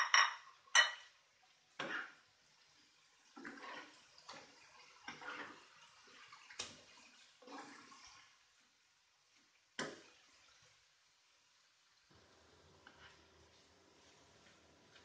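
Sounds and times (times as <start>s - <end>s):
spatula swishing wet sauce: 3.4s - 8.4s.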